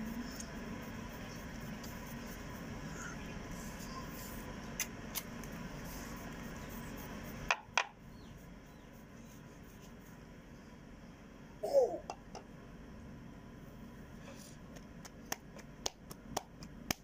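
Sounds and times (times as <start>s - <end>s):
rolling pin rubbing on dough: 0.0s - 4.5s, 5.8s - 10.2s.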